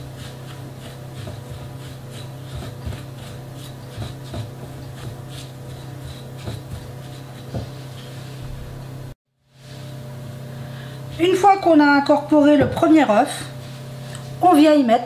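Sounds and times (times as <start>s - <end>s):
spatula scraping a glass bowl: 0.0s - 8.2s
steady low hum: 0.0s - 15.0s.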